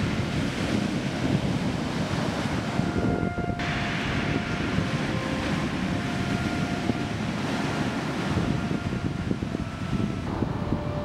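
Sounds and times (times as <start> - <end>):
surf washing on pebble beach: 0.0 - 11.0.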